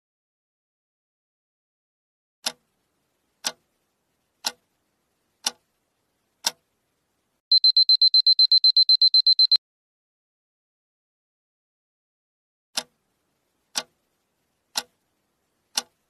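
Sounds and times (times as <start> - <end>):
clock ticks: 2.4 - 2.8, 3.4 - 4.8, 5.4 - 5.8, 6.4 - 6.7, 7.5 - 9.6, 12.8 - 13.0, 13.7 - 15.0, 15.6 - 16.0
rapid high-pitched alarm beeping: 7.5 - 9.6.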